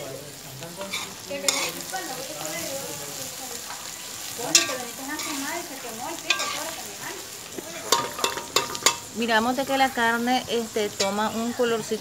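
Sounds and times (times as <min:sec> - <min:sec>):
meat sizzling in a pot: 0:00.0 - 0:12.0
spoon scraping a pot: 0:00.9 - 0:01.8, 0:04.5 - 0:05.5, 0:06.3 - 0:06.8
spoon clinking against pot: 0:04.5 - 0:05.4, 0:06.3 - 0:06.6, 0:07.8 - 0:09.1.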